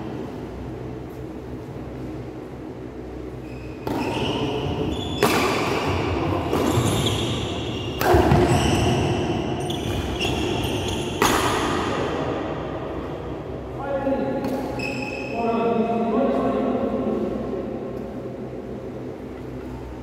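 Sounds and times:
racket striking shuttlecock: 0:03.8 - 0:08.6, 0:11.1 - 0:11.8.

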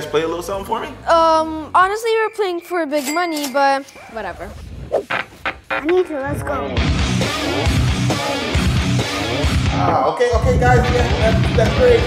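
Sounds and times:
pounding beat: 0:04.2 - 0:12.0
strummed electric guitar: 0:06.6 - 0:10.0
heavy rock music: 0:06.7 - 0:12.0.

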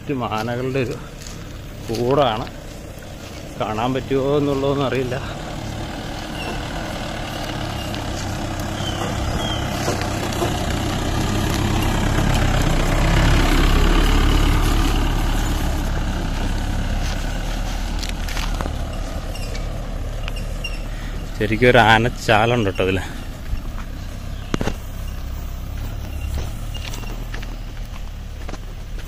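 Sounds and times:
car engine rumbling: 0:00.0 - 0:29.0.

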